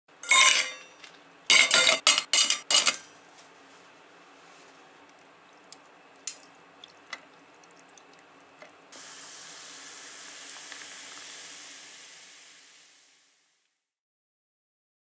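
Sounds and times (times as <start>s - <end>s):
soda water pouring and fizzing: 6.7s - 13.4s.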